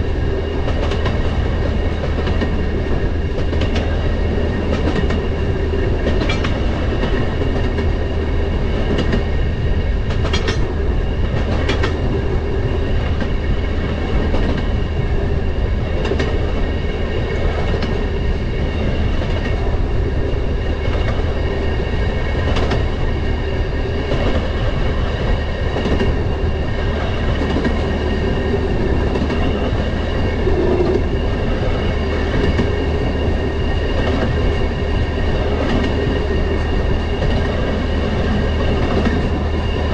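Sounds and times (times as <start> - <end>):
rail motorcar rumbling: 0.0 - 39.9
wheels clicking over rail joints: 3.3 - 8.0, 10.0 - 12.2.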